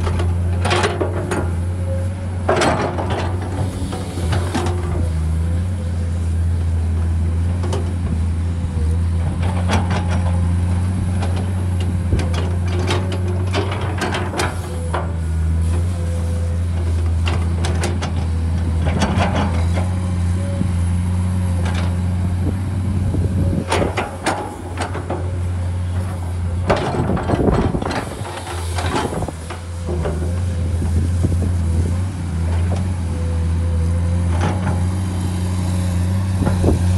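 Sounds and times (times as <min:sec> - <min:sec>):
excavator engine droning: 0:00.0 - 0:36.9
bucket clanking and scraping soil: 0:02.4 - 0:05.4, 0:23.4 - 0:32.9.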